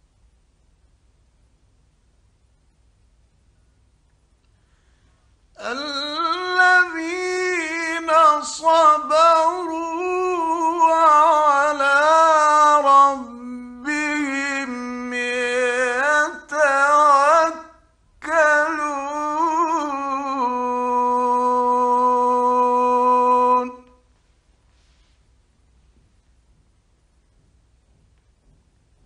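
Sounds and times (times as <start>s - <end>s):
man chanting melodically: 5.6s - 24.0s.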